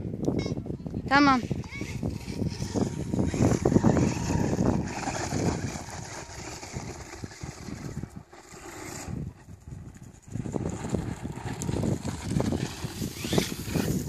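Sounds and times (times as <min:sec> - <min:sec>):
wind buffeting microphone: 0:00.0 - 0:14.0
toy truck electric motor: 0:01.4 - 0:09.2, 0:10.9 - 0:14.0
tyres scrabbling on gravel: 0:02.2 - 0:09.1, 0:09.9 - 0:14.0.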